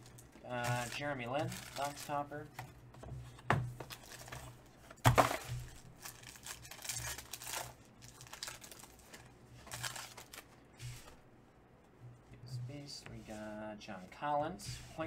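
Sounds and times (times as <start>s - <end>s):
foil crinkling: 0.0s - 2.3s, 5.1s - 10.6s
foil pack tearing: 0.6s - 2.2s, 5.3s - 10.4s.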